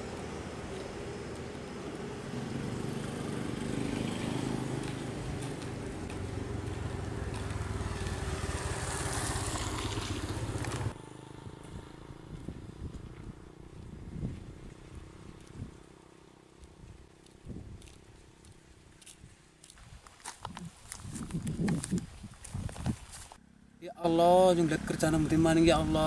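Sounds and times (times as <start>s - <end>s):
vehicle engine running: 0.0s - 18.6s.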